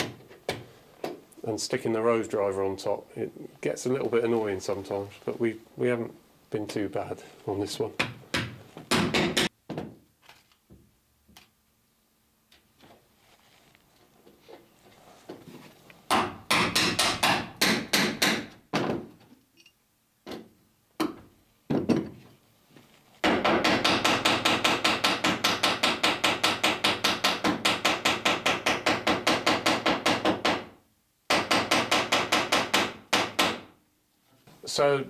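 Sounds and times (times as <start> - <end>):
hammer striking rivets: 8.0 - 10.0, 16.1 - 19.3, 23.2 - 33.8.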